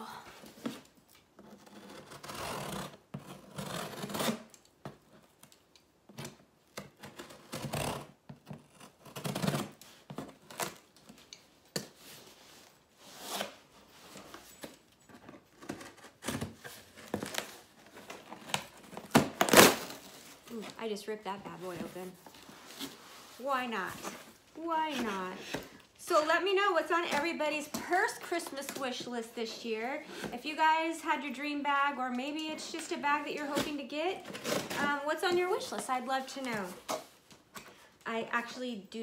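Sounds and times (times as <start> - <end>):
scissors cutting cardboard: 0.6 - 5.5, 6.1 - 11.8.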